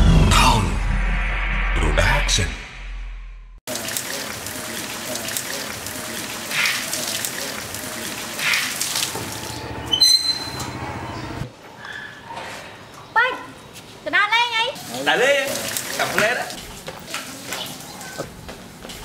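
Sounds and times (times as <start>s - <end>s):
garden hose spraying water: 3.7s - 9.6s, 14.7s - 18.2s.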